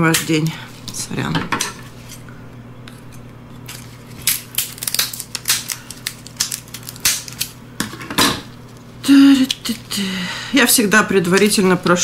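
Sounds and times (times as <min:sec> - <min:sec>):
crab shell cracking: 0:03.5 - 0:07.6.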